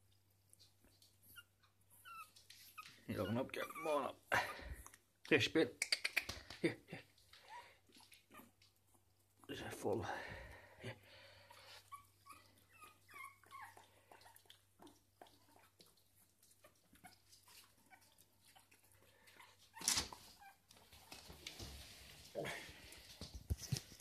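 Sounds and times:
puppy whimpering: 1.1 - 5.0, 7.3 - 9.2, 11.4 - 20.7
small clicks and scuffs: 19.3 - 24.0.

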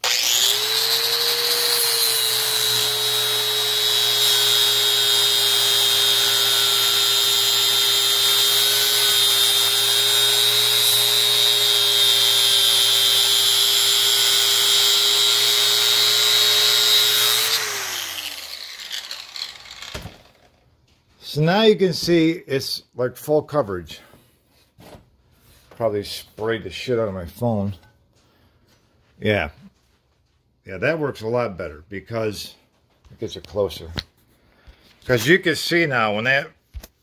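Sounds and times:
angle grinder grinding steel: 0.0 - 20.5
angle grinder winding down: 0.0 - 20.5.

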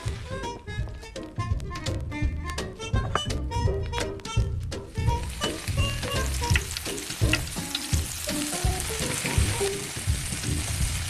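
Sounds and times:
batter sizzling in hot oil: 5.0 - 11.0
soft oil pops: 6.0 - 8.1.

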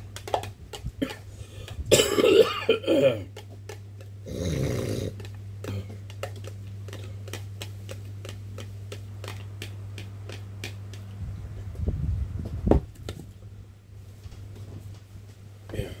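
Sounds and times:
electric fan humming: 0.0 - 16.0
mouth and drinking clicks: 0.1 - 1.8, 3.3 - 11.2.

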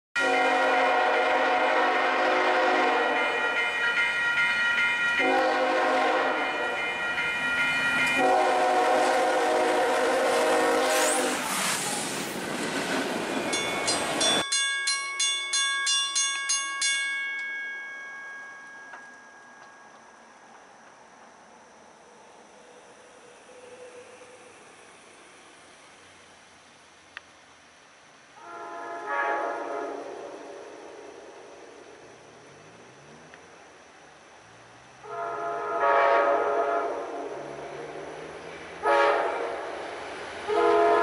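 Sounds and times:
locomotive air horn blasts: 0.2 - 3.7, 5.2 - 7.0, 8.1 - 11.5, 28.4 - 30.4, 35.0 - 37.4, 38.8 - 39.7, 40.5 - 41.0
crossing warning bell dinging: 0.2 - 9.6, 13.2 - 21.8
locomotive rumbling past: 0.2 - 14.5, 28.4 - 41.0.

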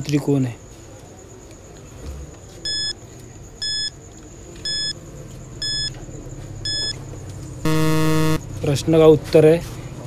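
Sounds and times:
short electronic beeps: 2.7 - 3.0, 3.6 - 3.9, 4.6 - 5.0, 5.6 - 5.9, 6.6 - 7.0, 7.7 - 8.4.

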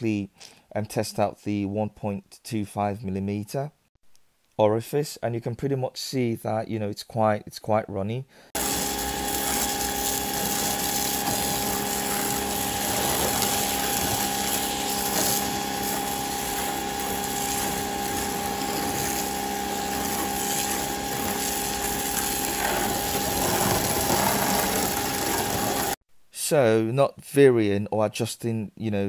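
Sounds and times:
pressure washer motor whine: 8.6 - 26.0.

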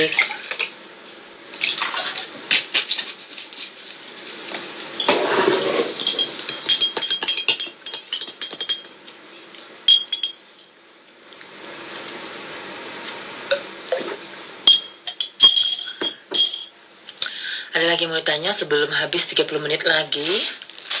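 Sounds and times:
spoon clinking on a glass: 6.0 - 9.0, 9.9 - 10.4, 14.7 - 16.7.

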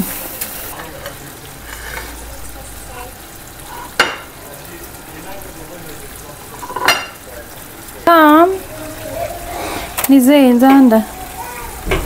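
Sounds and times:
sauce sizzling in a frying pan: 0.0 - 12.0.

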